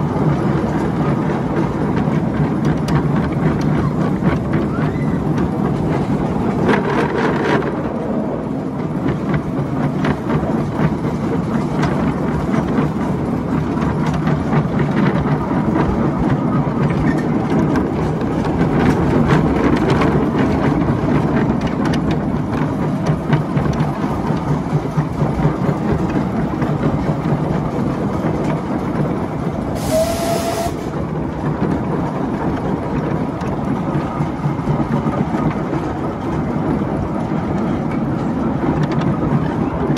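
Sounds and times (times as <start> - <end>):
miniature train rumbling and clattering: 0.0 - 39.9.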